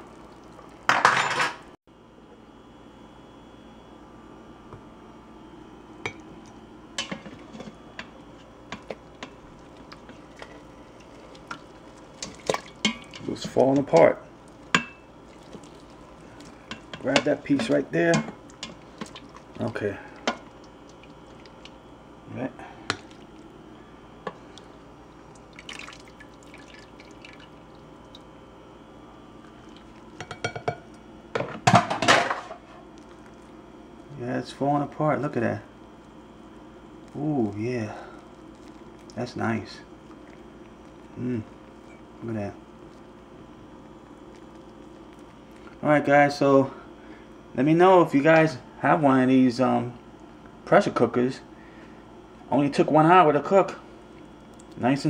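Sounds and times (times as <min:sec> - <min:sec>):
juice dripping: 0:00.0 - 0:00.9, 0:07.9 - 0:31.4, 0:32.8 - 0:34.3, 0:35.7 - 0:47.6, 0:49.8 - 0:50.7, 0:53.8 - 0:55.0
spoon knocking against pot: 0:30.2 - 0:30.8.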